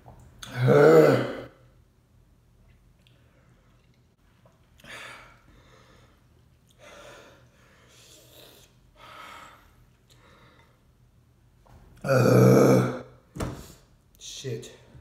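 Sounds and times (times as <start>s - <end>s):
man breathing hard: 4.8s - 10.9s.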